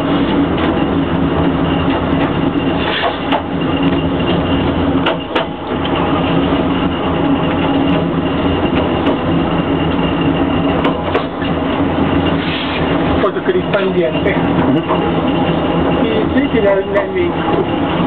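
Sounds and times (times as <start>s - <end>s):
train wheels rumbling: 0.0s - 18.0s
wheels clicking over rail joints: 0.4s - 12.5s.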